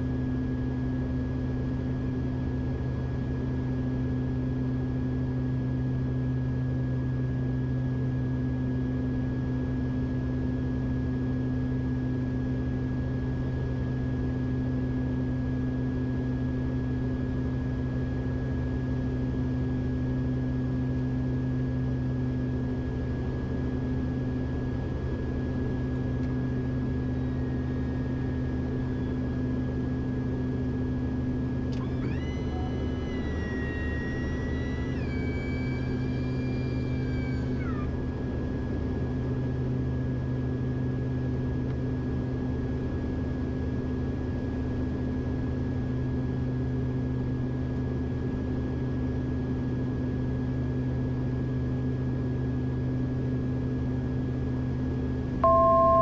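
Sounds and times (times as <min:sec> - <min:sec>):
turboprop engines droning: 0:00.0 - 0:45.8, 0:55.1 - 0:56.0
pitched electronic tone: 0:55.4 - 0:56.0.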